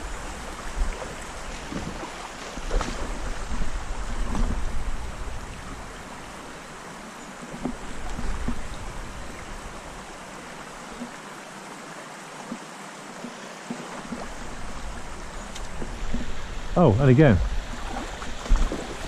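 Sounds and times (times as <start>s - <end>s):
wind buffeting microphone: 0.0s - 6.2s
stream water rushing: 0.0s - 19.0s.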